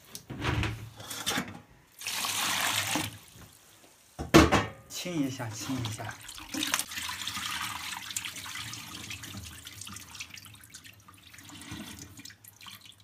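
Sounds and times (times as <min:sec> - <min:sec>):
water pouring into a steel sink: 0:01.9 - 0:03.3, 0:05.3 - 0:13.0
water sloshing and splashing: 0:05.4 - 0:13.0.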